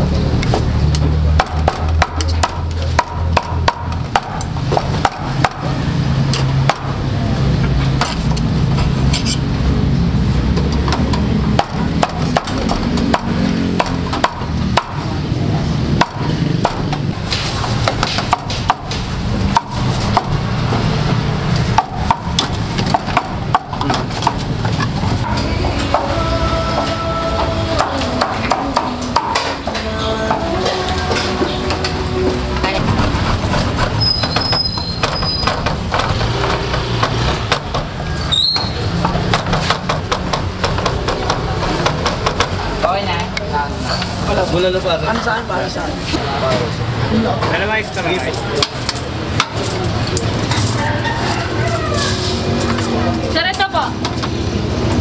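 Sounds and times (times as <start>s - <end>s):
background music: 25.2s - 33.6s.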